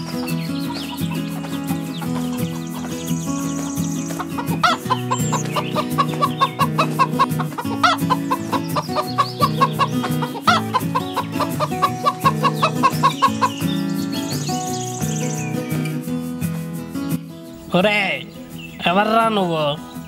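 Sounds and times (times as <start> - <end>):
chickens clucking: 0.0 - 15.1
background music with low drone: 0.0 - 15.9
chicken squawks: 4.1 - 13.6.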